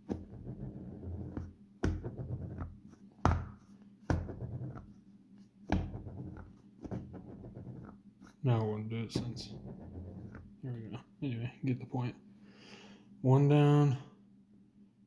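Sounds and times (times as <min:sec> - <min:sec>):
wheel knocked on wooden table: 0:00.0 - 0:04.9, 0:05.7 - 0:08.0.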